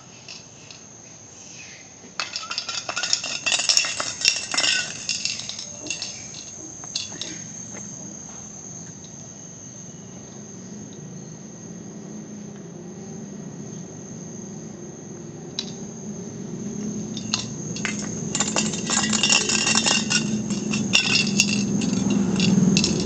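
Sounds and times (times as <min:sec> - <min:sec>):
high-pitched insect drone: 0:00.0 - 0:23.0
metal can clinking and crinkling: 0:02.2 - 0:07.4, 0:17.2 - 0:23.0.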